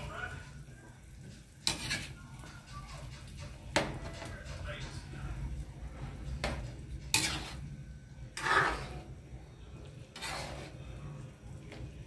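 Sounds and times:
broth simmering: 0.0s - 12.0s
ladle scraping a pan: 1.2s - 5.1s, 6.1s - 11.1s.

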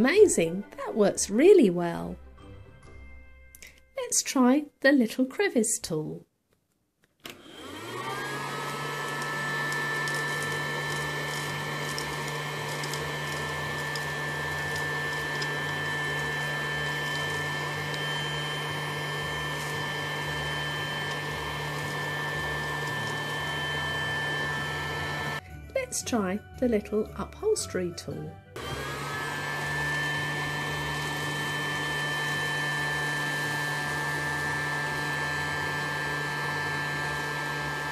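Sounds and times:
toy vacuum cleaner whine: 7.3s - 25.4s, 28.6s - 37.9s.

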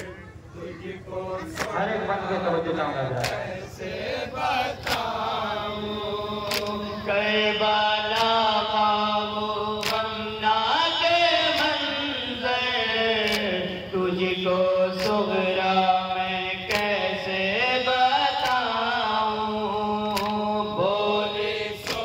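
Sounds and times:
men chanting through microphone: 0.0s - 22.0s
hands slapping chests: 3.2s - 3.4s, 6.4s - 6.8s, 9.8s - 10.0s, 13.2s - 13.5s, 18.4s - 18.6s, 20.1s - 20.4s, 21.8s - 22.0s.

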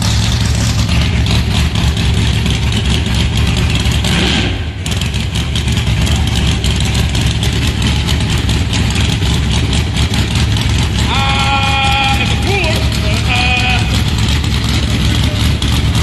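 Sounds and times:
race car engine idling loudly: 0.0s - 16.0s.

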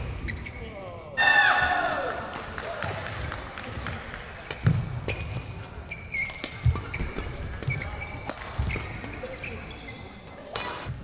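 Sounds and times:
shoes squeaking on court: 0.2s - 0.8s, 4.6s - 11.0s
rackets hitting shuttlecock: 4.4s - 9.6s, 10.4s - 11.0s.

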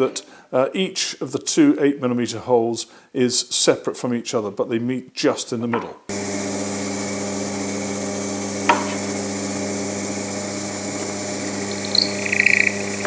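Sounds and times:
pillar drill motor humming: 6.1s - 13.0s.

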